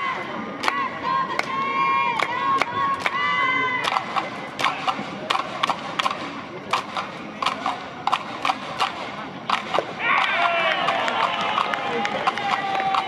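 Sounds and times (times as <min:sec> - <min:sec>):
crowd murmur: 0:00.0 - 0:13.0
sharp claps or knocks: 0:03.8 - 0:13.0.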